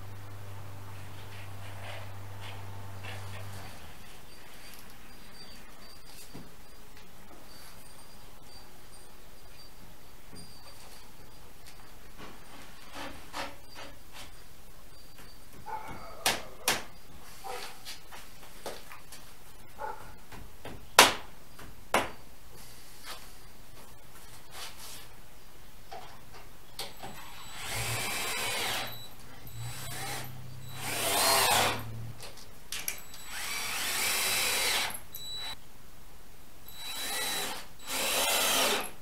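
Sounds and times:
cordless drill driving screws: 0:26.9 - 0:32.0, 0:32.9 - 0:35.6, 0:36.7 - 0:39.0.

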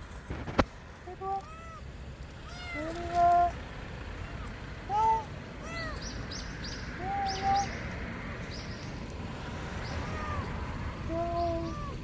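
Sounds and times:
small birds chirping: 0:01.1 - 0:12.0
kitten mewing: 0:02.4 - 0:03.6, 0:04.2 - 0:06.0, 0:09.9 - 0:12.0.

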